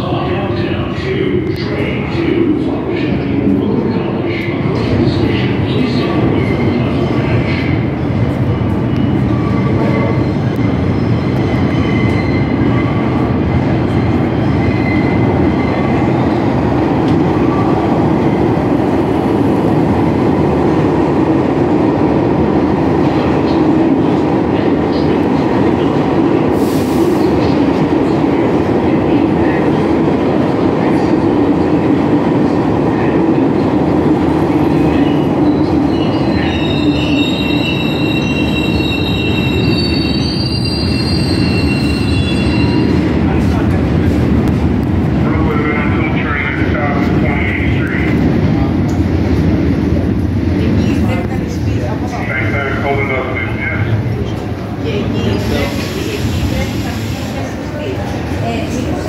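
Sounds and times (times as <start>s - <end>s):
subway train rumbling on rails: 0.0s - 59.0s
high-pitched wheel squeal: 35.9s - 43.0s.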